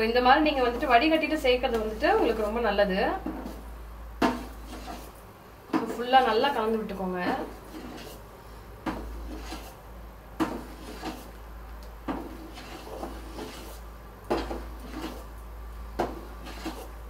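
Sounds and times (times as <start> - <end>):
metal ladle scraping a steel pot: 12.3 - 15.3.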